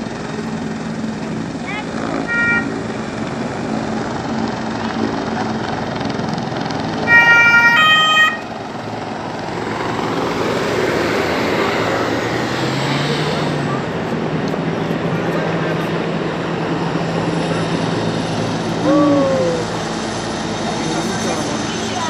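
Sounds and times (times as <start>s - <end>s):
outdoor background noise: 0.0s - 22.0s
two-tone emergency siren: 7.0s - 9.6s.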